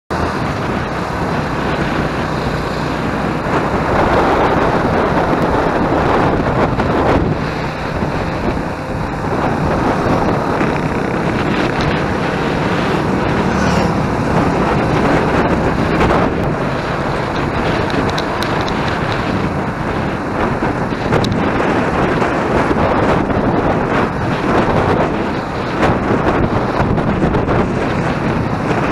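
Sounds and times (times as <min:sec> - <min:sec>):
motorcycle engine drone: 0:00.1 - 0:28.9
wind rushing over microphone: 0:00.1 - 0:28.9.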